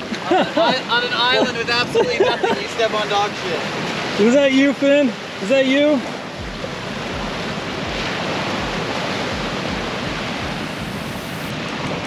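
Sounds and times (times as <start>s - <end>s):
surf washing onto beach: 0.0s - 12.0s
wind buffeting microphone: 6.0s - 11.5s.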